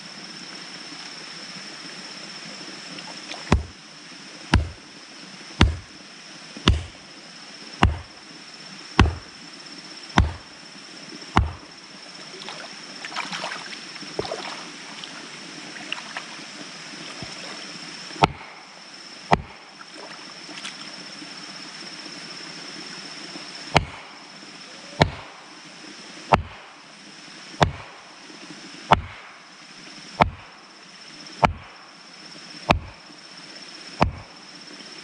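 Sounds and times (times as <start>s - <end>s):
wading through shallow water: 2.1s - 22.8s
mallet pounding wooden stake: 3.5s - 3.8s, 4.5s - 4.8s, 5.6s - 5.9s, 6.6s - 7.0s, 7.8s - 8.1s, 9.0s - 9.3s, 10.2s - 10.5s, 11.4s - 11.6s, 18.2s - 18.5s, 19.3s - 19.5s, 23.8s - 24.1s, 25.0s - 25.3s, 26.3s - 26.6s, 27.6s - 28.0s, 28.9s - 29.2s, 30.2s - 30.5s, 31.4s - 31.7s, 32.7s - 33.0s, 34.0s - 34.3s.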